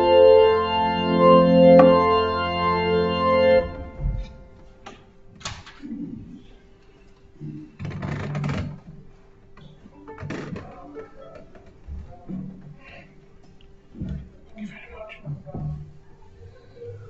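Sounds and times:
church organ chord: 0:00.0 - 0:04.8.

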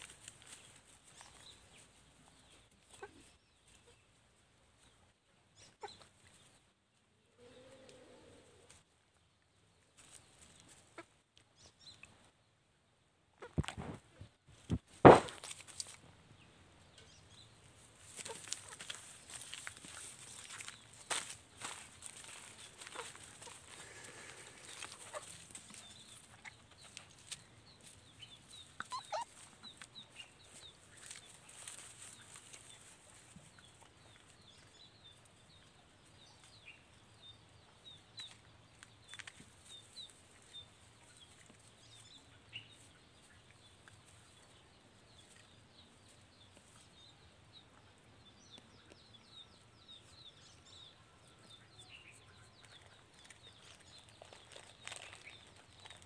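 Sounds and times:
light ticks and chirps: 0:07.6 - 0:12.3, 0:24.2 - 0:50.6
poultry calls: 0:20.4 - 0:26.6, 0:28.6 - 0:29.9.

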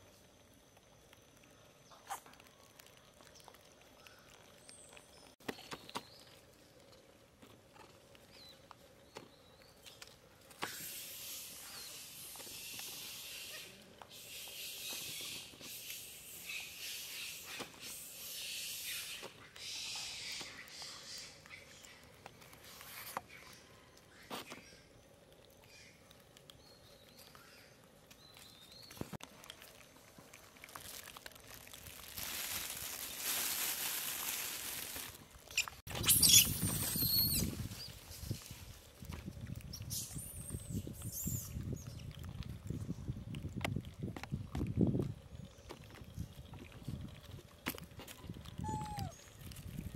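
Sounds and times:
steady hiss: 0:10.6 - 0:19.4
monkeys rustling dry leaves: 0:25.4 - 0:42.9, 0:46.7 - 0:49.9
monkeys screeching: 0:35.5 - 0:37.5, 0:48.6 - 0:49.2.

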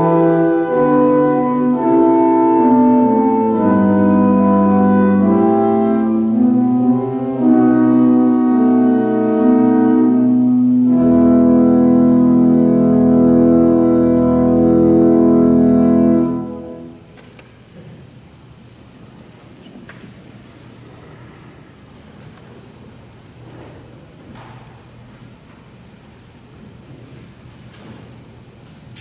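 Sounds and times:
deep bass organ note: 0:00.0 - 0:17.0
church organ chords: 0:00.0 - 0:17.1.

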